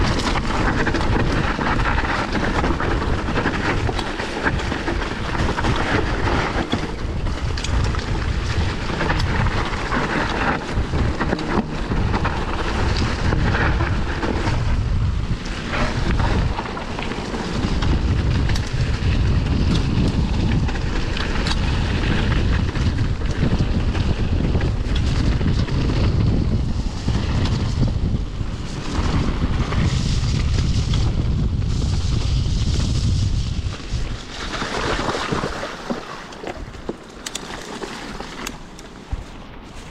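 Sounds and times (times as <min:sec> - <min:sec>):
bike rattles and knocks: 0:00.0 - 0:39.9
bike tyres rolling on dirt: 0:00.0 - 0:39.9
wind buffeting microphone: 0:00.0 - 0:39.9.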